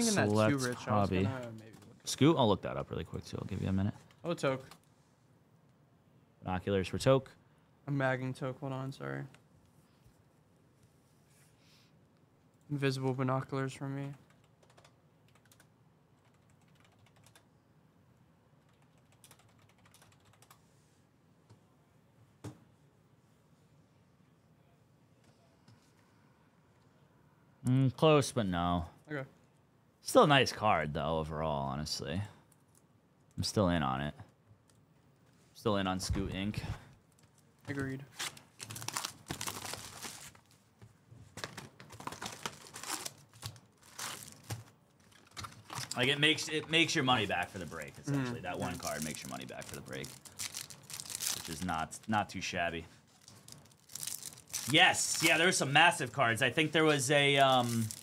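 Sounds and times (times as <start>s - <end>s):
typing on computer keyboard: 14.0s - 17.5s, 18.6s - 20.6s
card wrappers crinkling and tearing: 38.1s - 40.6s, 41.4s - 46.1s, 47.1s - 52.2s, 53.1s - 55.6s, 56.9s - 58.0s.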